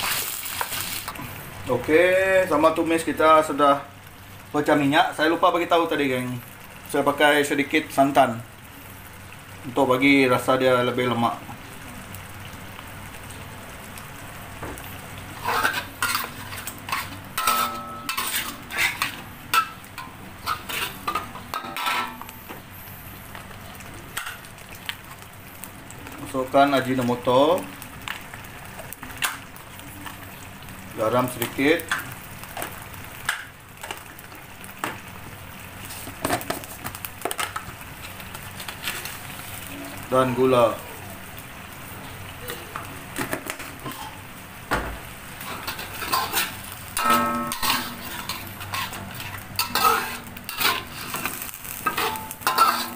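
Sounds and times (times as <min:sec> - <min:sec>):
paste sizzling in oil: 0:00.0 - 0:52.9
metal spatula scraping wok: 0:15.4 - 0:22.3, 0:45.4 - 0:52.9
low steady hum: 0:46.8 - 0:50.8.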